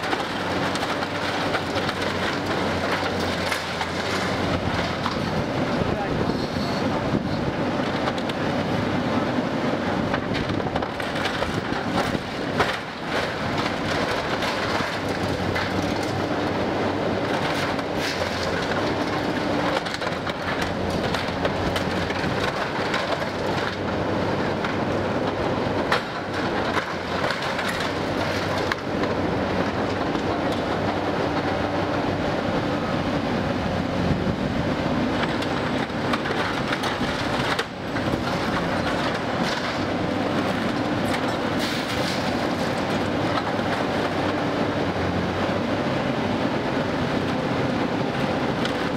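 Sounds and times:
metal debris clattering and crunching: 0.0s - 6.1s, 10.1s - 31.6s, 35.0s - 44.3s
excavator engine and hydraulics: 0.0s - 48.9s.

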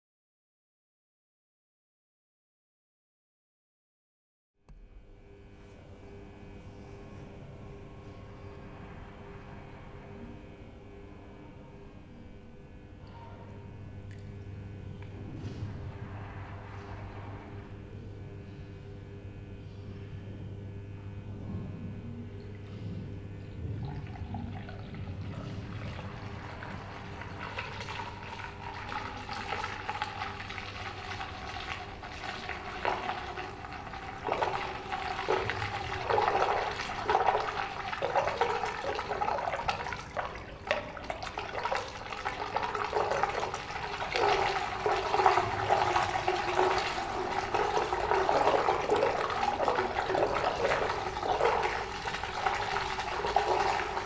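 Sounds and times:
water gurgling down a drain: 22.4s - 54.0s.

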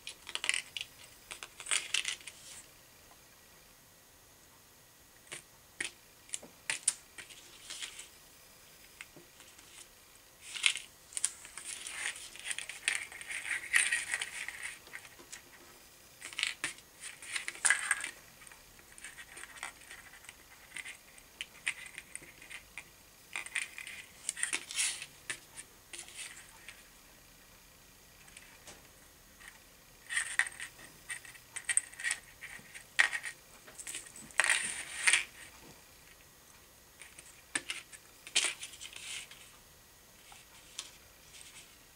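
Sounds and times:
scratchy rustling: 40.2s - 41.8s.

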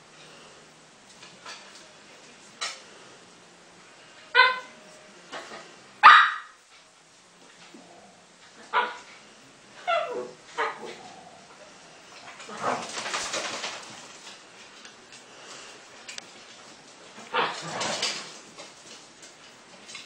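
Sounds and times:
dogs barking: 4.3s - 4.8s, 6.0s - 6.6s, 8.6s - 9.2s, 9.8s - 11.2s
dogs scuffling: 12.1s - 20.0s.

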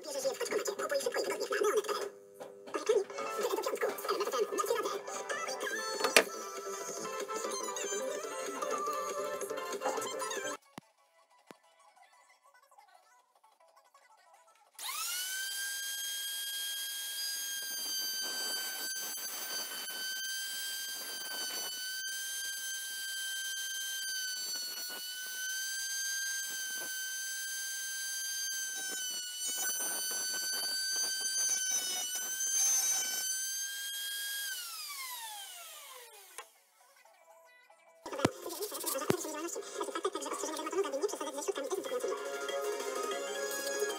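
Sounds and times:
router motor whining: 5.4s - 10.6s, 14.8s - 36.5s
router cutting wood: 5.7s - 10.5s, 14.8s - 36.5s.

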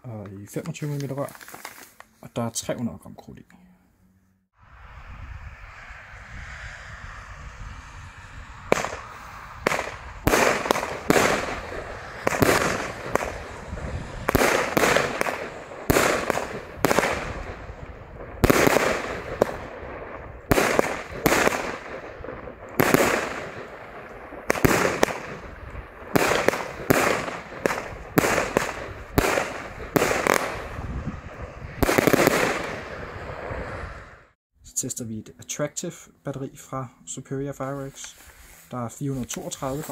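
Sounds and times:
fireworks bangs: 8.1s - 34.1s.

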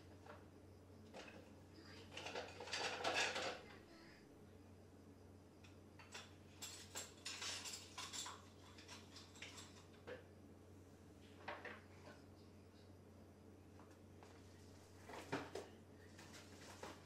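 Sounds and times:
steady low hum: 0.0s - 17.0s
small objects clicking and tapping: 5.6s - 10.3s.

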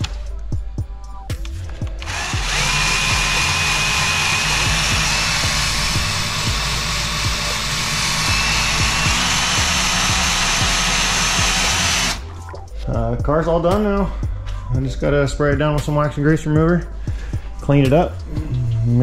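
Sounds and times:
background music: 0.0s - 19.0s
power tool motor whine: 2.0s - 12.2s.

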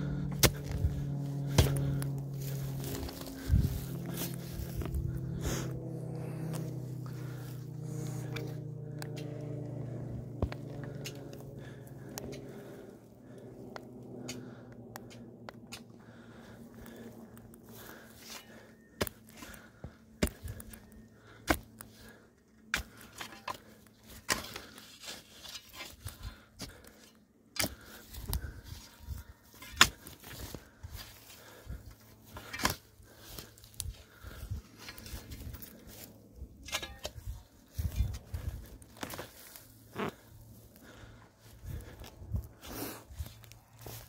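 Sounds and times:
footsteps on dry grass: 0.0s - 14.2s, 37.5s - 44.0s
engine running: 0.0s - 25.2s.

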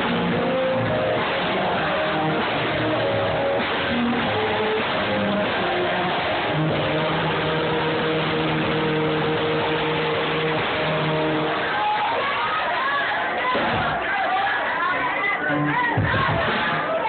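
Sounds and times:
instrumental accompaniment: 0.0s - 12.1s.

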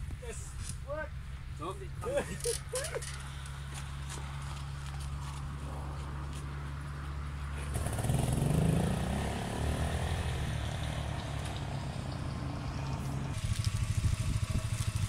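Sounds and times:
motorcycle engine starting and revving: 7.5s - 15.0s.

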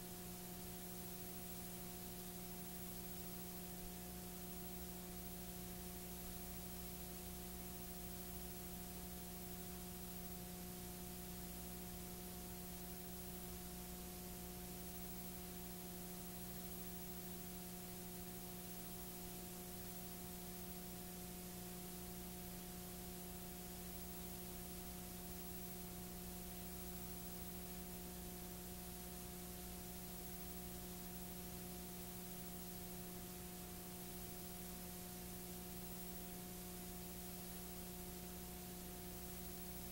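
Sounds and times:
tape hiss: 0.0s - 39.9s.

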